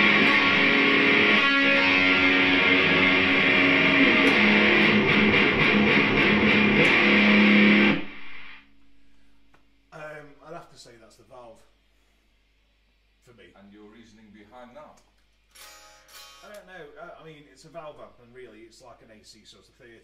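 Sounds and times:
distorted electric guitar riff: 0.0 - 9.2.

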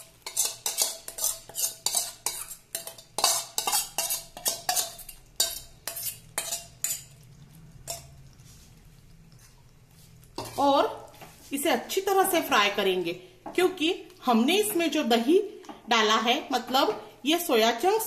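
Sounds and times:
metal spoon scraping steel bowl: 0.0 - 8.7, 10.4 - 10.8.

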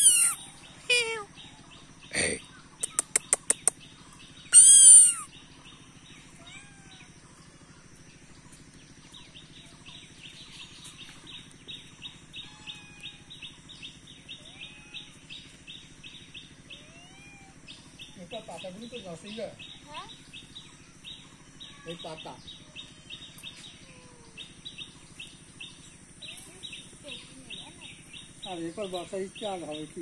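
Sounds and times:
birds chirping: 0.0 - 30.0
sharp clicks: 2.8 - 3.8.

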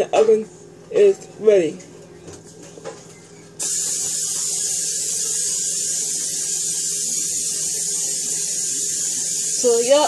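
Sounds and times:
steady hiss: 3.6 - 10.0.

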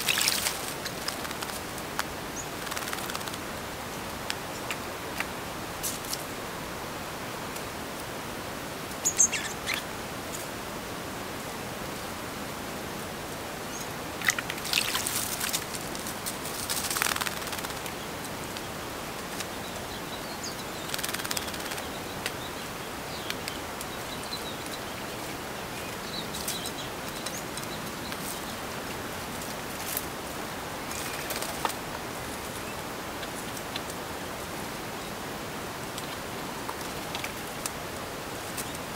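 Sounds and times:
bird splashing in water: 0.0 - 1.7, 14.2 - 15.8
steady background hiss: 0.0 - 38.9
faint high bird chirps: 9.0 - 9.8.

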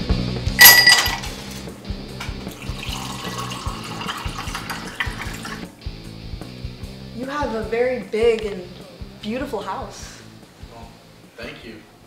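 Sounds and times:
background music: 0.0 - 12.0
glass clinking: 0.6 - 1.5, 2.6 - 5.7
juice pouring over ice: 2.4 - 5.7.

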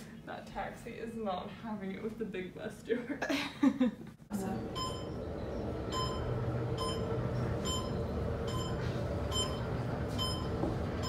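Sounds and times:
elevator running hum: 4.3 - 11.0.

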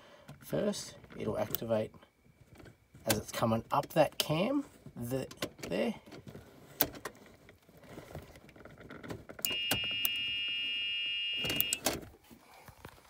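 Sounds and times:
reverse warning buzzer: 9.5 - 11.8
selector switch clicks: 11.4 - 11.8.

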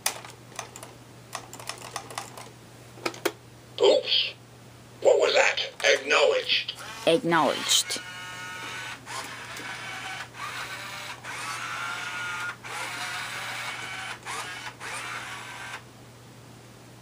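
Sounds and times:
toy robot motors whirring: 6.8 - 15.8.

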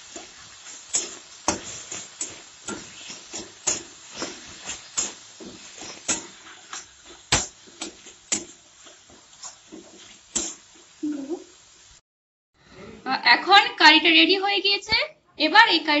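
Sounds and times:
metal spatula scraping a pan: 0.0 - 10.7
oil sizzling: 0.0 - 12.0.

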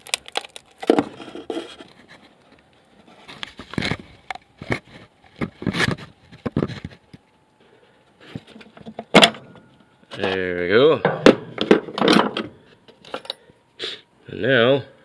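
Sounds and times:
metal scraping and knocking: 11.0 - 13.2.

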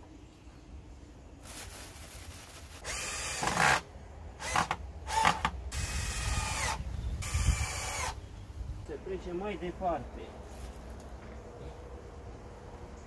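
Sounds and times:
cordless drill whirring: 2.8 - 3.8, 4.4 - 8.2.

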